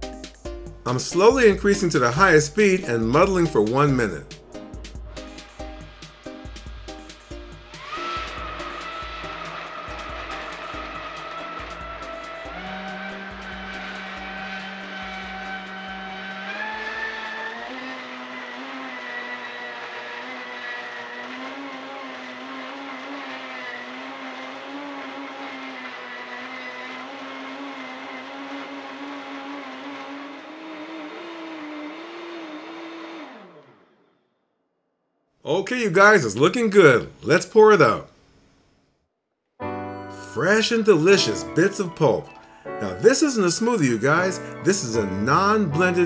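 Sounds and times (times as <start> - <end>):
blender motor running: 4.2 - 34.3.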